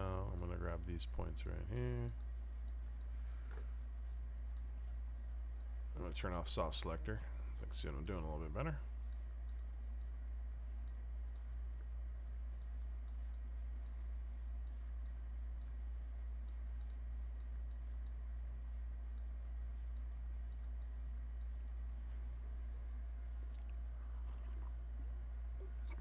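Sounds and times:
steady low hum: 0.0 - 26.0
computer mouse clicks: 2.1 - 5.8, 9.0 - 22.2.

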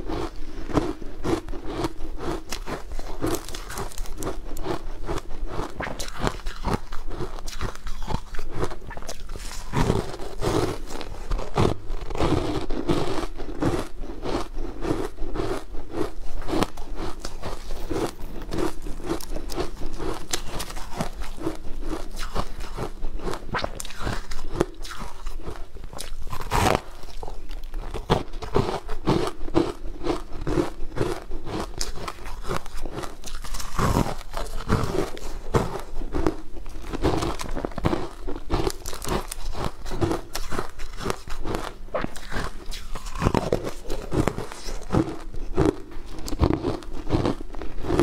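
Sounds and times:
rhythmic chewing: 0.0 - 48.0
crunchy bites into frozen food: 0.1 - 48.0.

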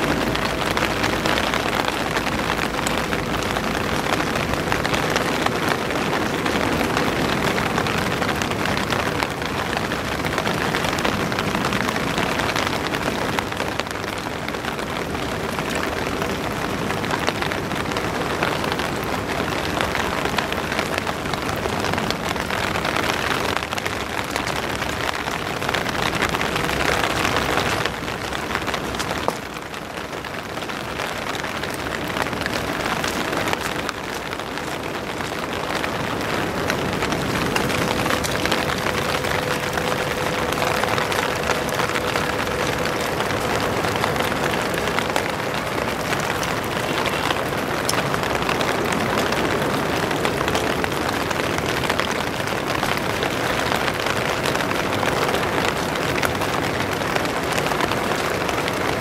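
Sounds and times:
rain pattering: 0.0 - 59.0.

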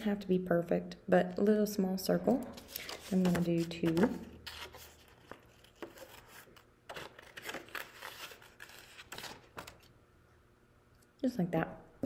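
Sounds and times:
paper rustling: 2.5 - 9.9.

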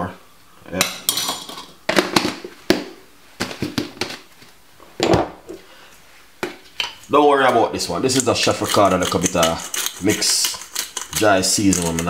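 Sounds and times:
jars and utensils clinking: 0.8 - 1.8, 8.2 - 12.0.

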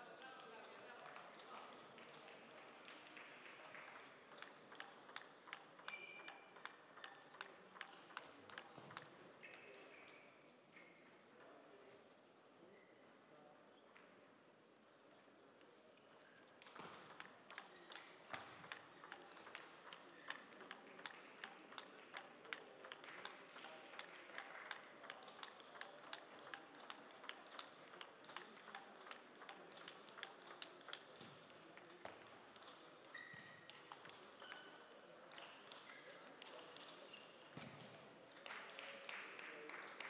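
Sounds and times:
table tennis ball clicking: 4.3 - 9.1, 16.6 - 31.3.

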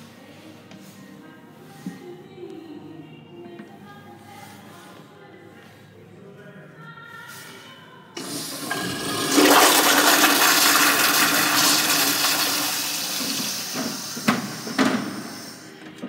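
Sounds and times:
toilet flushing: 8.2 - 15.8.

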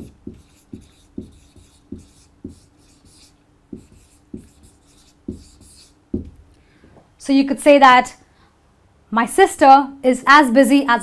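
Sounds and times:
marker writing on whiteboard: 0.0 - 6.5.

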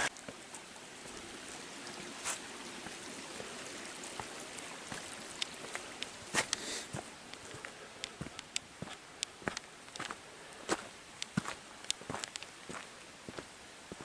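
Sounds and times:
creek trickling over rocks: 0.0 - 14.0
footsteps crunching on gravel: 4.9 - 14.0.

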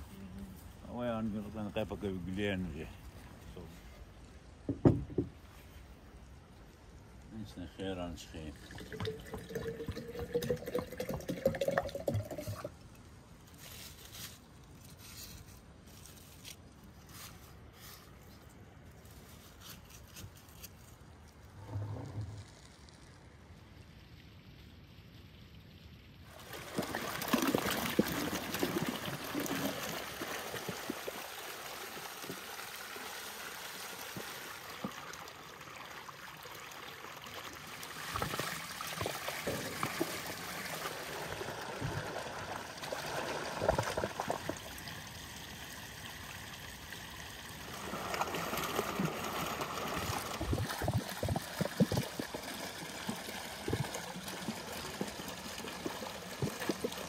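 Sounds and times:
water splashing and running: 7.8 - 14.5, 26.2 - 57.0.

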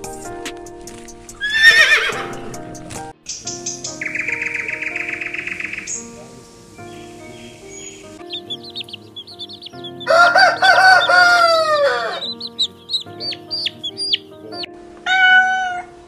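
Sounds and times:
chicks peeping: 3.3 - 14.7
rooster crowing: 8.6 - 14.2.

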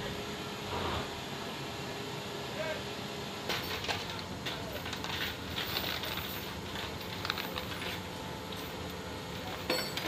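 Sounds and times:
metal chains clinking: 4.8 - 8.0, 8.6 - 10.0.

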